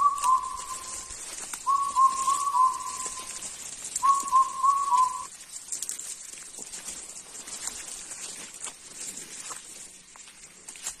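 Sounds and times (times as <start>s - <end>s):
whistled call: 0.0s - 3.4s, 4.0s - 5.3s
high-pitched hiss: 0.0s - 5.4s.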